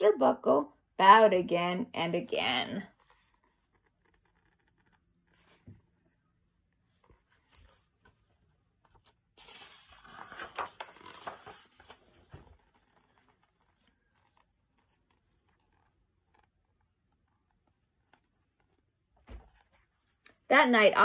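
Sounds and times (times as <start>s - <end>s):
book pages rustling: 2.9s - 5.9s, 6.8s - 20.2s.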